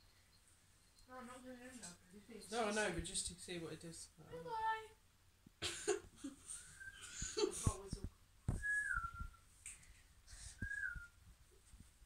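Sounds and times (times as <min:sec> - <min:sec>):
soft low thumps: 0:07.2 - 0:09.4, 0:10.4 - 0:12.0
person whistling short notes: 0:08.6 - 0:09.4, 0:10.5 - 0:11.2.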